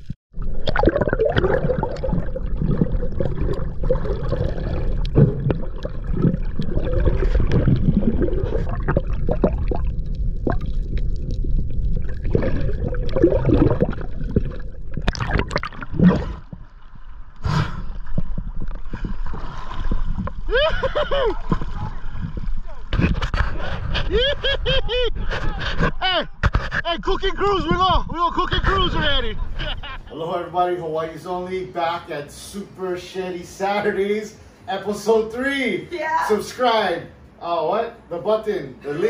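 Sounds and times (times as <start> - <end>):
muffled underwater gurgling: 0.4 - 16.7
water sloshing: 0.4 - 23.9.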